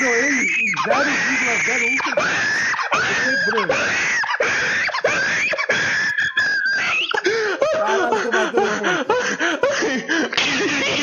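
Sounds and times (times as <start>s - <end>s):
person wavering cry: 0.0s - 10.1s
people laughing: 0.0s - 11.0s.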